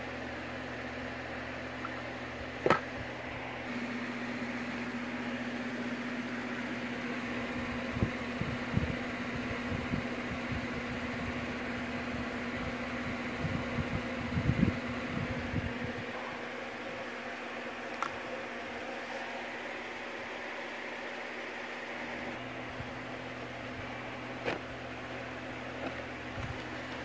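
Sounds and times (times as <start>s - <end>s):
electrical hum: 0.0s - 27.0s
packaging handling noise: 25.7s - 27.0s.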